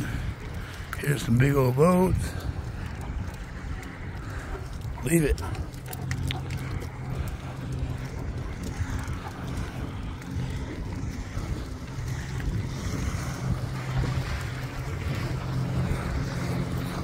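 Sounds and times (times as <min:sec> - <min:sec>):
boat motor droning: 0:00.0 - 0:17.0
wind buffeting microphone: 0:00.0 - 0:17.0.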